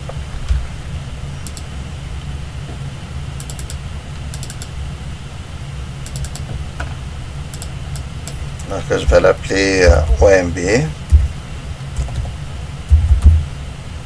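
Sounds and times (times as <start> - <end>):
steady low hum: 0.0 - 14.0
computer mouse clicking: 1.4 - 1.7, 3.4 - 4.7, 6.0 - 6.5, 7.5 - 8.4, 12.0 - 13.4.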